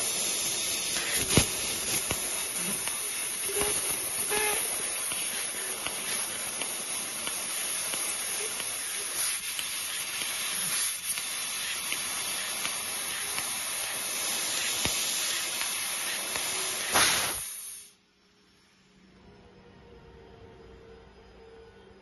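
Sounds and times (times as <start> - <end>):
high-pitched gas hiss: 0.0 - 18.0.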